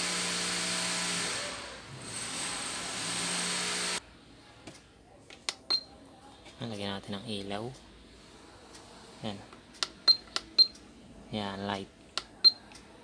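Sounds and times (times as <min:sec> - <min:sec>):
power drill whining: 0:00.0 - 0:04.0.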